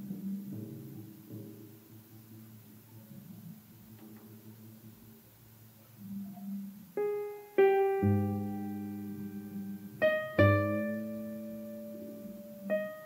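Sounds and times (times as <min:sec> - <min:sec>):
jazz piano playing: 0:06.9 - 0:13.0.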